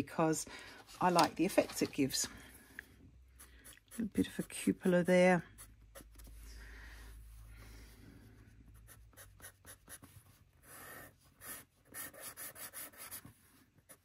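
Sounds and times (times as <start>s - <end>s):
pencil scratching on paper: 3.3s - 6.6s, 8.6s - 14.0s.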